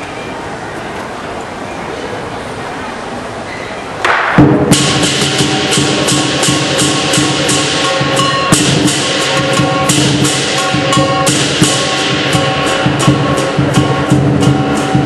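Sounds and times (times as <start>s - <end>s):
cymbals clashing: 4.0s - 15.0s
drum beating: 4.1s - 15.0s
ringing gong: 4.7s - 15.0s.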